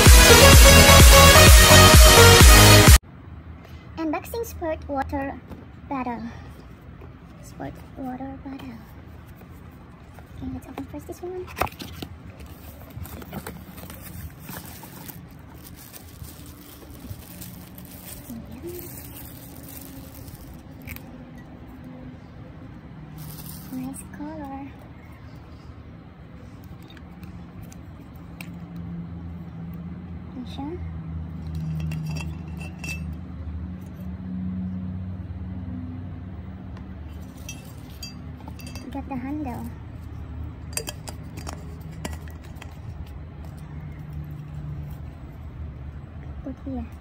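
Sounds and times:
steady background noise: 3.0 - 47.0
soft handling noises: 6.4 - 28.8, 36.8 - 47.0
plastic bag rustling: 11.4 - 21.2, 23.1 - 23.9
metal bottle clinks and taps: 31.5 - 33.2, 37.4 - 39.0, 40.7 - 42.8.

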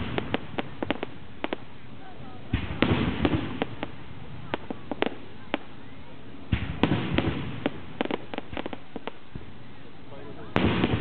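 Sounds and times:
fireworks bursting: 0.0 - 11.0.

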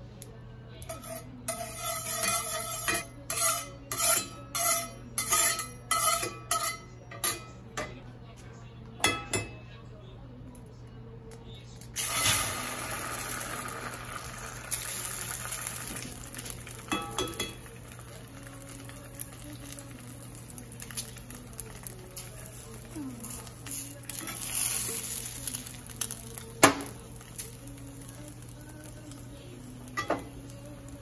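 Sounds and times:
egg sizzling in hot oil: 12.0 - 31.0.

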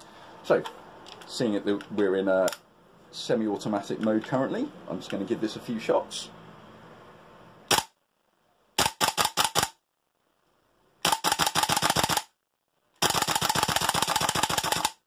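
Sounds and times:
airsoft rifle firing: 7.7 - 8.0, 8.8 - 9.8, 11.0 - 12.3, 13.0 - 15.0.

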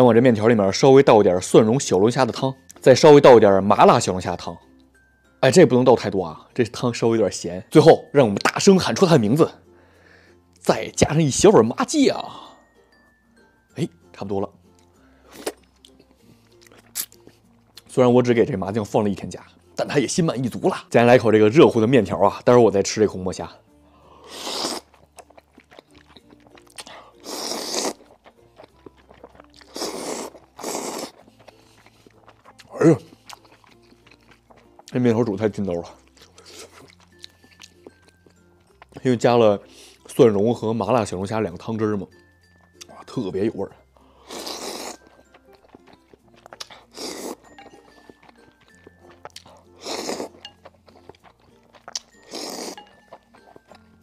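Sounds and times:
quiet background music: 0.0 - 54.0
faint chewing and mouth clicks: 14.7 - 17.9, 24.2 - 39.1, 44.2 - 54.0
noodles slurped: 24.2 - 35.0, 44.2 - 53.8.

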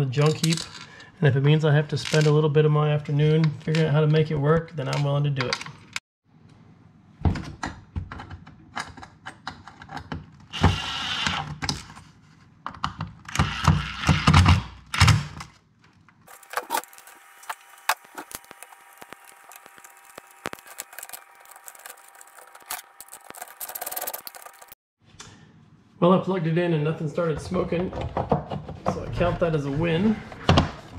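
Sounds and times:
wire clicks: 16.3 - 24.8.

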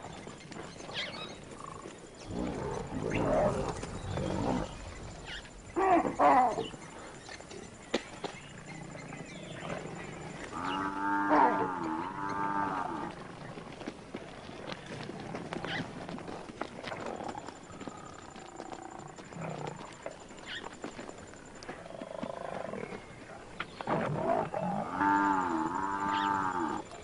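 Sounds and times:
lions growling and snarling: 0.8 - 7.6, 8.3 - 13.6, 16.8 - 20.7, 21.4 - 27.0
buffalo bellowing: 9.6 - 13.2, 23.9 - 27.0.

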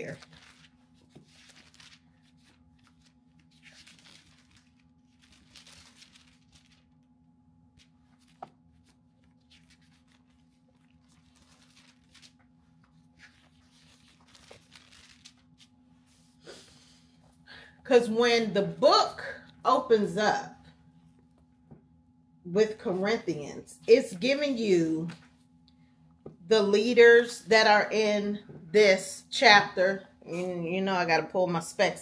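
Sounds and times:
thin pages rustling: 0.0 - 16.4
low steady hum: 0.0 - 32.0.

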